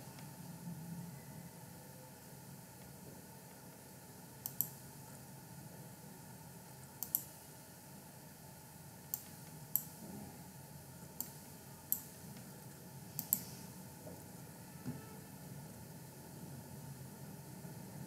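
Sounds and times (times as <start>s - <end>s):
computer mouse clicks: 4.4s - 4.8s, 7.0s - 7.3s, 9.1s - 9.9s, 11.2s - 12.5s, 13.2s - 13.5s.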